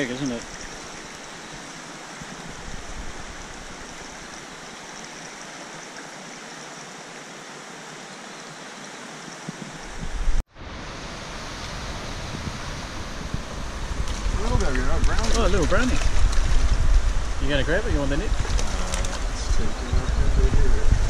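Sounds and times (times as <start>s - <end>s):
stream rushing over stones: 0.0s - 20.8s
low rumble: 12.5s - 21.0s.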